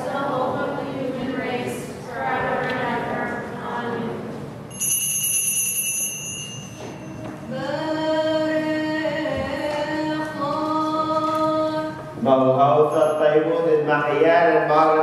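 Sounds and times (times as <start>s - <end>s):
group of voices singing: 0.0s - 4.4s, 7.5s - 12.3s
high ringing tone: 4.7s - 7.9s, 12.8s - 13.7s.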